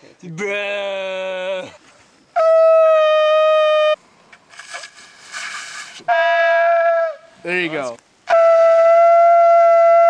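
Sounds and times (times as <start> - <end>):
rushing noise: 4.5 - 6.1
animal horn blast: 6.1 - 7.4.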